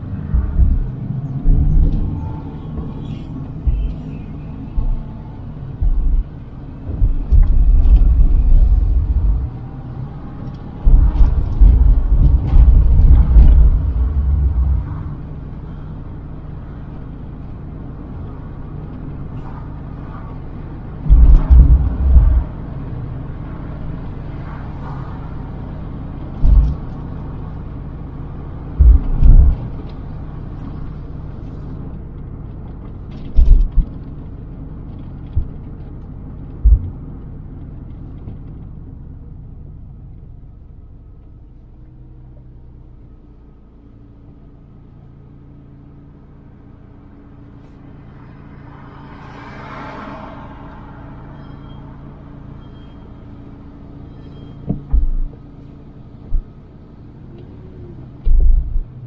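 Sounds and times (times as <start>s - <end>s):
loud low rumbles: 0.0s - 16.9s, 20.4s - 24.0s, 28.6s - 30.4s, 35.2s - 38.5s
road and engine drone: 0.0s - 59.0s.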